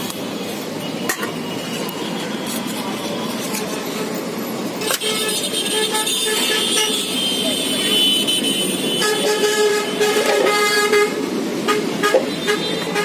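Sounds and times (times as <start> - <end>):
street traffic: 0.0 - 13.0
vehicle horn tooting: 4.9 - 13.0.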